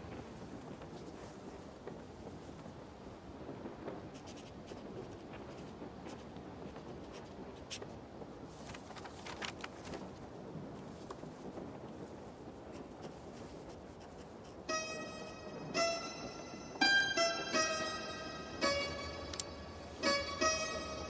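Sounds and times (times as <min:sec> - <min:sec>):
faint steady hiss: 0:00.0 - 0:21.0
pen nib scratching paper: 0:04.2 - 0:07.9, 0:12.7 - 0:14.6.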